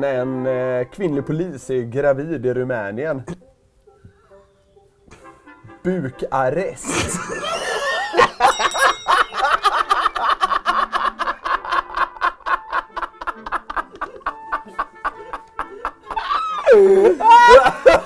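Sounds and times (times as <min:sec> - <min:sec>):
men laughing hard: 0:06.8 - 0:18.0.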